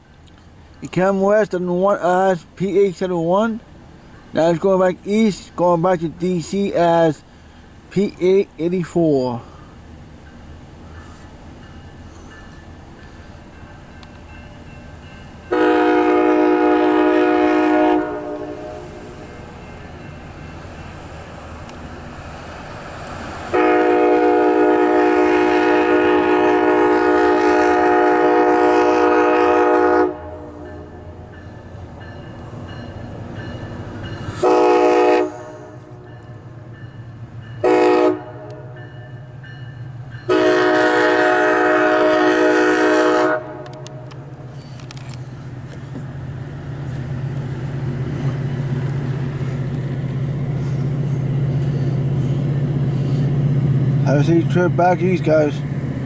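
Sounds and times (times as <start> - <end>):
train horn blasts: 15.5 - 19.4, 23.5 - 31.3, 34.3 - 36.2, 37.6 - 39.2, 40.2 - 44.2.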